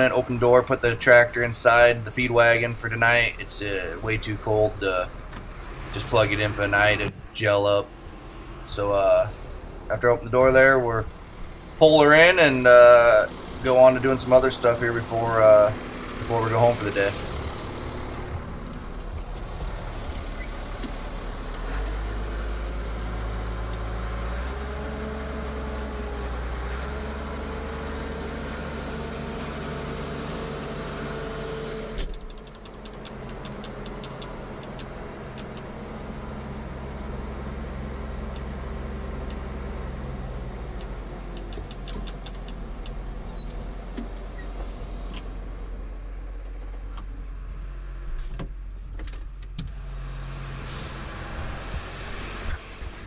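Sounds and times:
tractor engine running: 0.0s - 53.0s
faint clicks: 32.0s - 35.7s.

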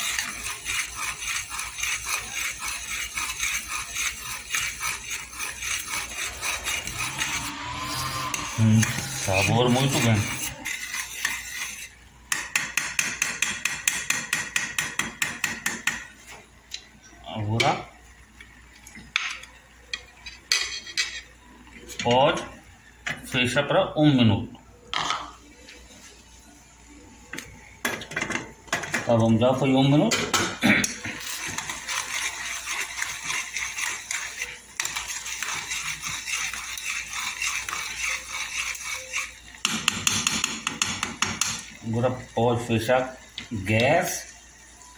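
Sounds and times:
spoon scraping saucepan: 0.0s - 12.0s, 30.8s - 41.8s.

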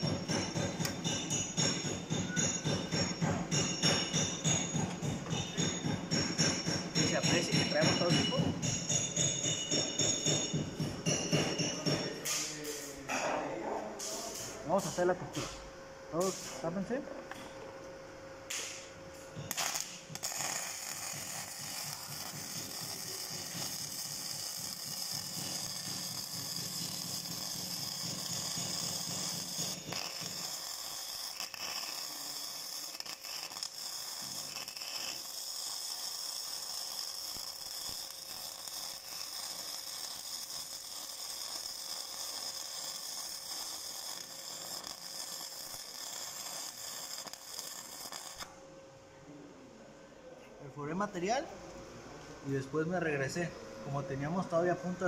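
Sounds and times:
welding arc crackling: 18.5s - 48.6s.

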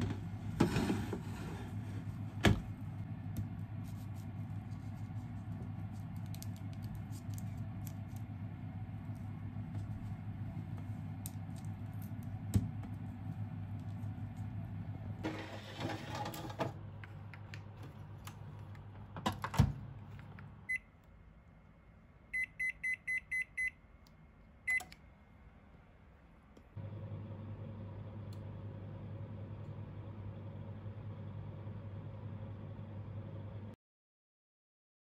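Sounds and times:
tray sliding into oven: 0.5s - 2.0s, 15.2s - 16.8s
oven door shutting: 15.2s - 16.8s
control panel beeps: 22.4s - 23.8s.

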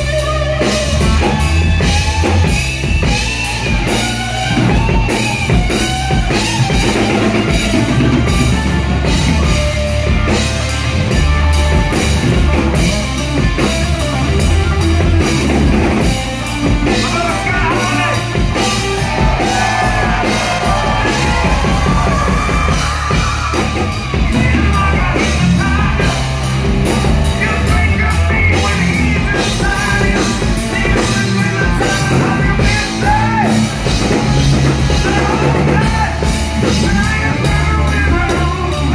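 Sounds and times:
man singing and shouting: 0.0s - 2.5s, 16.7s - 33.9s, 34.6s - 38.9s
bass guitar: 0.0s - 38.9s
distorted electric guitar: 0.0s - 38.9s
drum kit: 0.0s - 38.9s.

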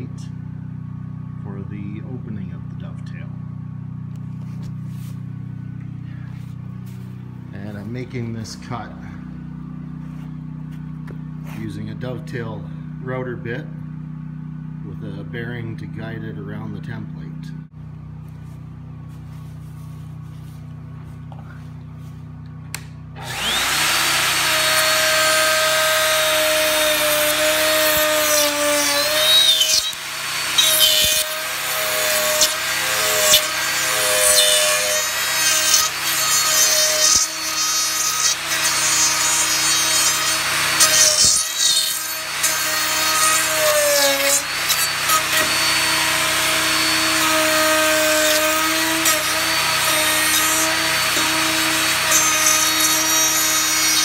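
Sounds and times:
router motor whine: 22.7s - 54.0s
router bit cutting wood: 23.2s - 54.0s.

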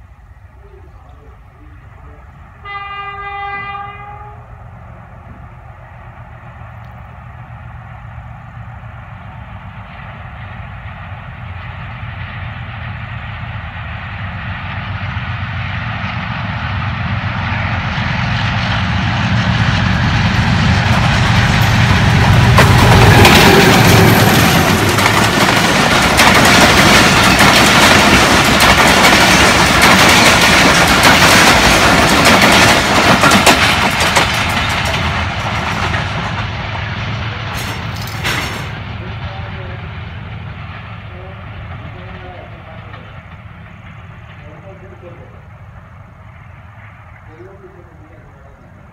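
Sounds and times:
diesel locomotive engine hum: 0.0s - 48.9s
train wheels clacking on rails: 18.8s - 45.3s.

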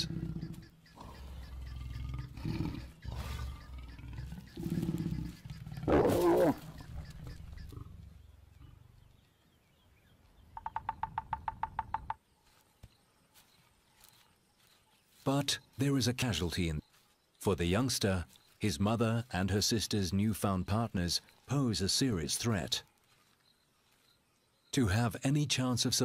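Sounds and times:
woodpecker rattle: 0.0s - 7.9s, 10.6s - 12.2s
lions growling and snarling: 0.0s - 9.1s.

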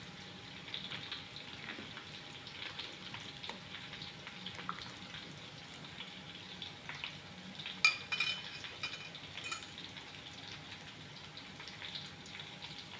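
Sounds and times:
soup simmering with popping bubbles: 0.1s - 12.9s
metal ladle clinking against pot: 7.8s - 9.7s.

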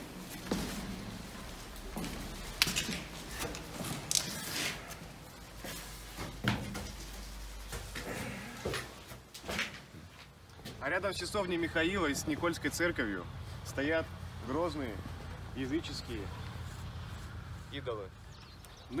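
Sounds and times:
footsteps on stone steps: 0.0s - 10.9s.

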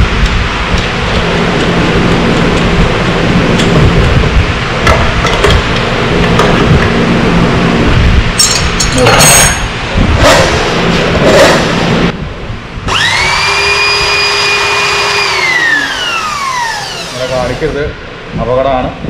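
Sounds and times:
electric drill motor whine: 12.9s - 17.9s.

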